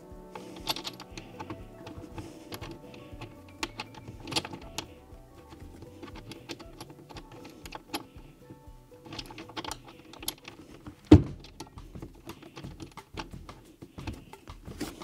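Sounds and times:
faint background music: 0.0 - 15.0
clicks and taps on wooden frame: 9.0 - 15.0.

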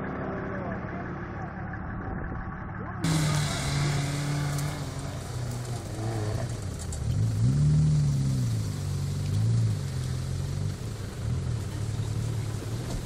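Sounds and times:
off-road vehicle engine revving: 3.0 - 13.0.

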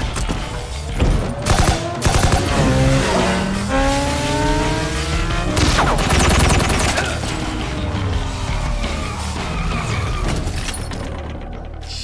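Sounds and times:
background music: 0.0 - 12.0
engine revving: 0.6 - 10.4
gunshots: 1.4 - 2.6, 5.6 - 7.2.

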